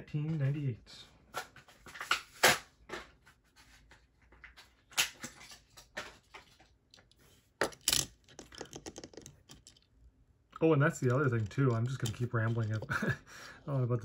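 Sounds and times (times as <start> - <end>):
toy car handling clicks and rubs: 10.8 - 13.0.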